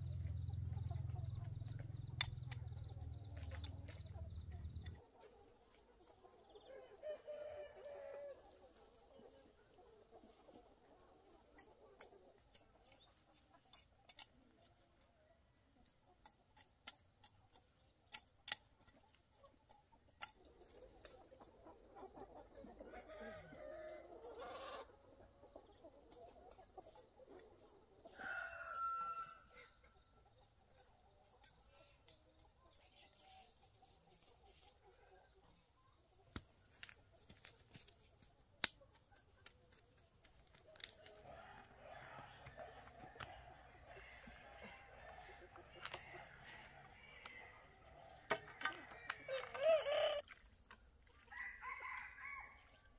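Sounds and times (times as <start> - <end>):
chickens clucking faintly: 0.0 - 52.9
rooster crowing: 28.2 - 29.6, 41.2 - 50.2, 51.2 - 52.8.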